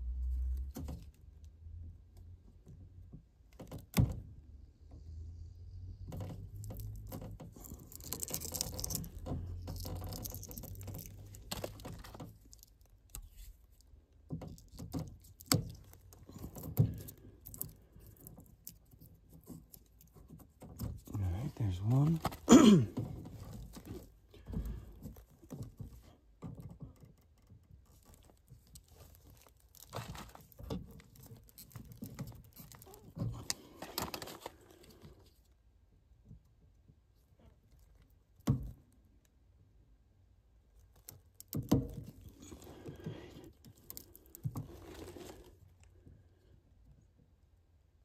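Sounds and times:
wiring scraping and crinkling: 5.9 - 35.5, 40.7 - 46.2.

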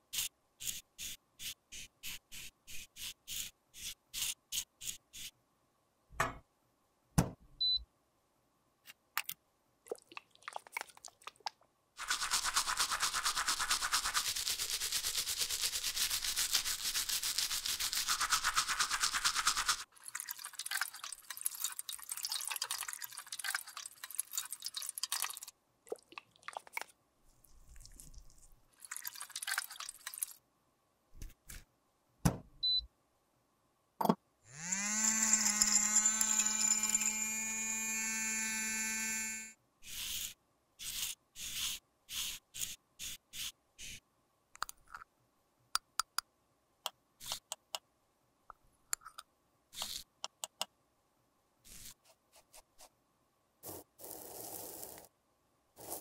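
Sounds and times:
toothbrush scrubbing plastic: 12.0 - 25.5, 26.1 - 30.4
small electric motor spinning: 34.5 - 40.3.

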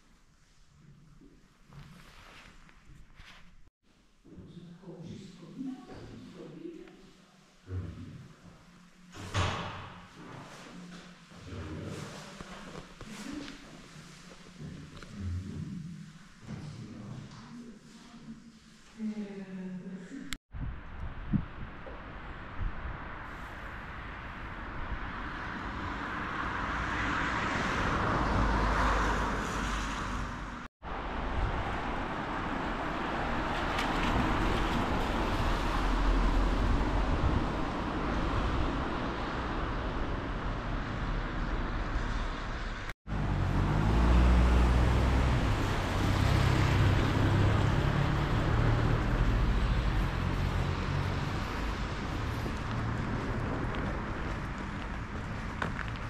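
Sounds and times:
road traffic rumble: 21.2 - 56.0.

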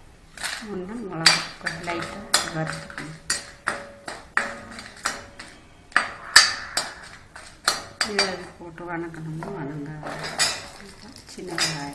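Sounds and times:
chillies sizzling in oil: 0.3 - 11.9
spoon scraping metal pan: 1.3 - 8.6, 9.2 - 11.9.

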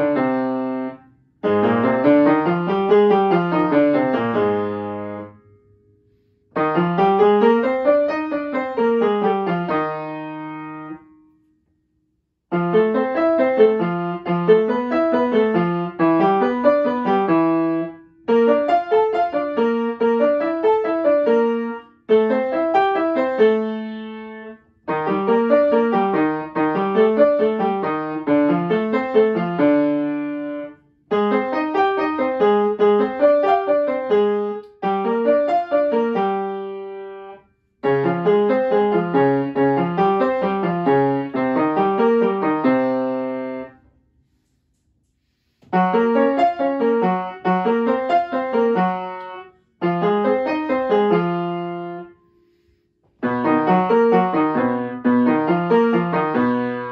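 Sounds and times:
upright piano playing: 0.0 - 5.4, 6.5 - 11.1, 12.5 - 43.8, 45.7 - 52.2, 53.2 - 56.9.

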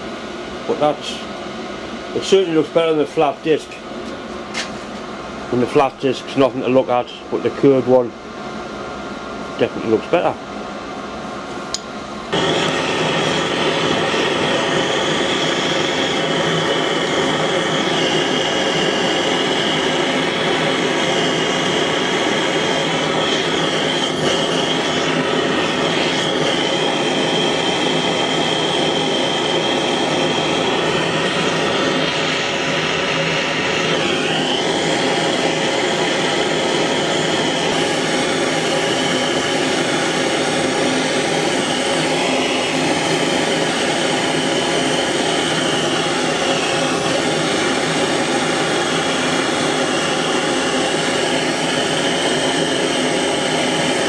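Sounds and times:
blowtorch flame rushing: 12.3 - 54.0.

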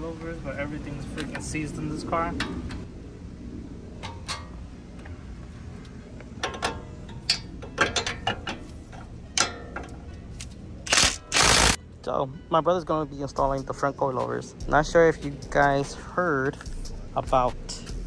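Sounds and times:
ratchet clicking: 10.9 - 11.8.

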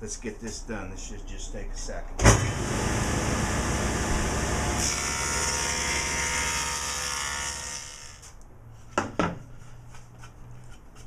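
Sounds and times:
table saw whining: 2.2 - 8.3.

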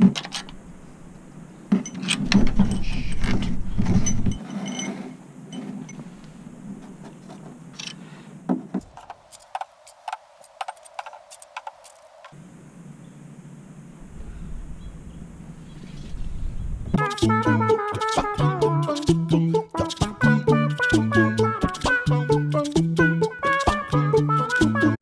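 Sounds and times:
hand tools clinking: 1.7 - 6.0, 7.2 - 8.0, 8.8 - 12.3.

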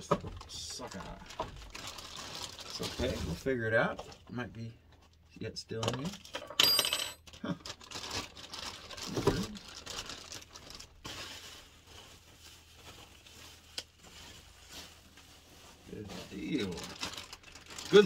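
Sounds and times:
plastic bag and bubble wrap crinkling: 0.3 - 4.2, 7.3 - 18.0.

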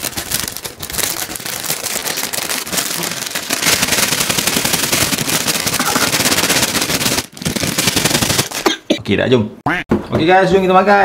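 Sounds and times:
paper bag of fries shaken: 0.0 - 8.7.

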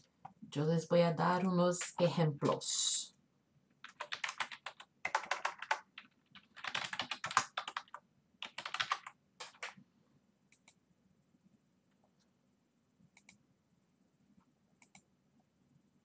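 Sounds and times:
typing on computer keyboard: 1.8 - 2.1, 3.8 - 9.8.

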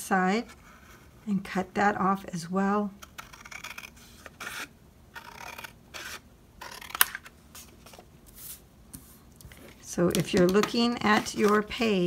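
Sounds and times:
scissors cutting cardstock: 3.0 - 7.2.

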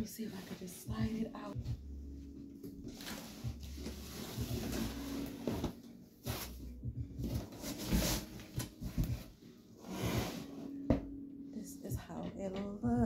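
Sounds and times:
cardboard and cloth rustling: 0.0 - 1.6, 2.7 - 11.1.

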